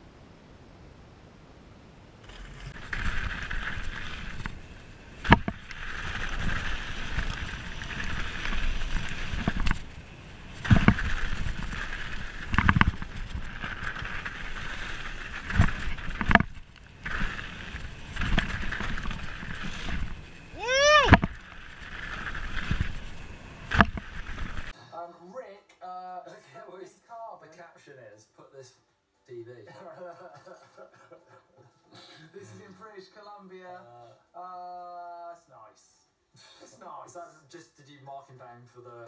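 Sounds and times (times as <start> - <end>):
tyre and trail noise: 2.1 - 24.8
bike rattling: 2.2 - 24.7
bike knocking on bumps: 2.8 - 24.7.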